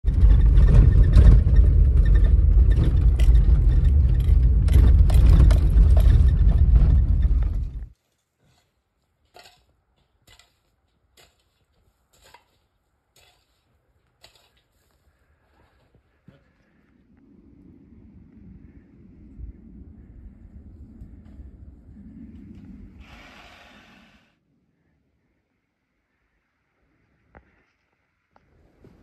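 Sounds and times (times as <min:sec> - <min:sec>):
vehicle rumbling on rough ground: 0:00.0 - 0:08.0.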